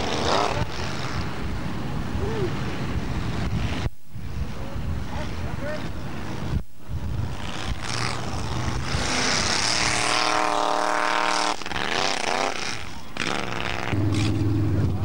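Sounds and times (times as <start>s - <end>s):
buggy engine revving: 7.2s - 15.0s.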